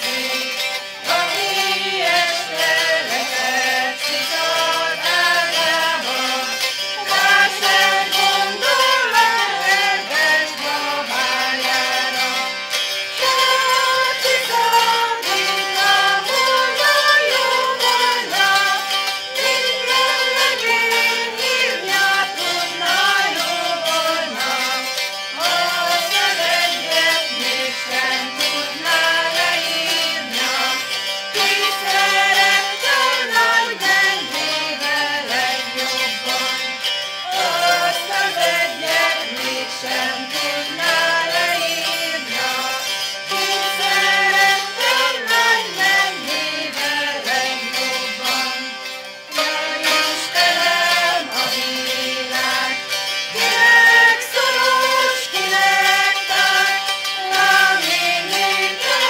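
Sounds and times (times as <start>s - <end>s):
live folk music: 0.0s - 59.0s.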